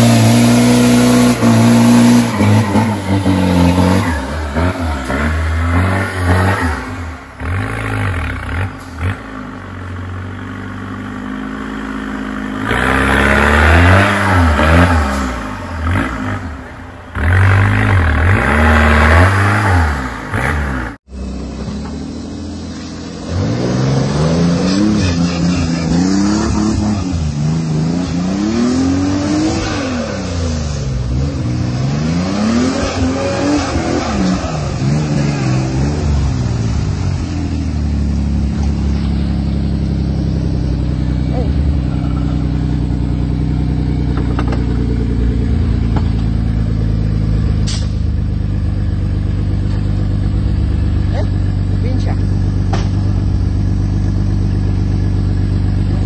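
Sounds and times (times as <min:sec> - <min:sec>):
engines revving hard: 0:00.0 - 0:09.5, 0:11.8 - 0:21.0, 0:23.2 - 0:37.4.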